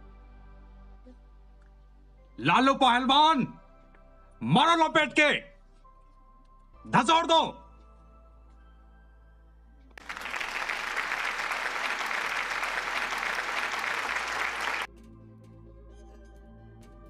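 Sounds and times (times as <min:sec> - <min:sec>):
faint background music: 0:00.0 - 0:10.0, 0:10.7 - 0:17.0
crowd applauding: 0:10.0 - 0:14.9.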